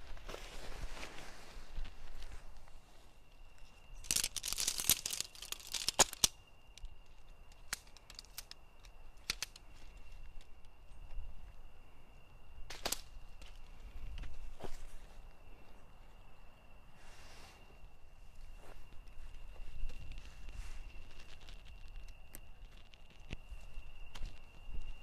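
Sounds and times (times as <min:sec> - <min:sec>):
tent poles clicking together: 0:03.6 - 0:10.7, 0:12.7 - 0:14.3.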